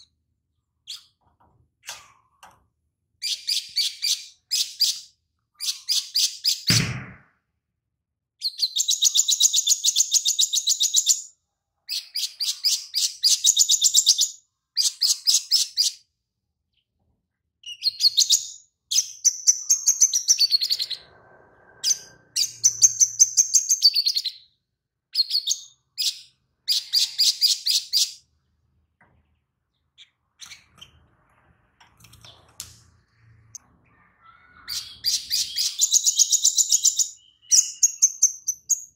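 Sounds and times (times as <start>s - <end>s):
bird singing trilled chirps: 33.2s - 38.9s.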